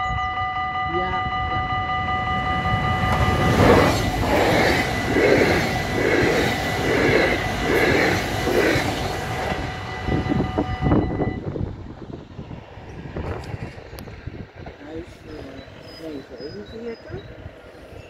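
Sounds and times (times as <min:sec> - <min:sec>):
level crossing warning bell: 0:00.0 - 0:06.4, 0:09.4 - 0:11.6, 0:15.0 - 0:18.0
train passing with rhythmic rumble: 0:00.0 - 0:18.0.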